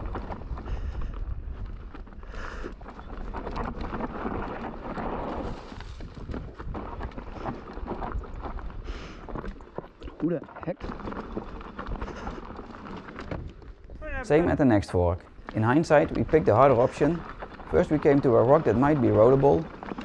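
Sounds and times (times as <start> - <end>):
wind on microphone: 0.0 - 9.4
bike clattering over rocks: 2.8 - 20.0.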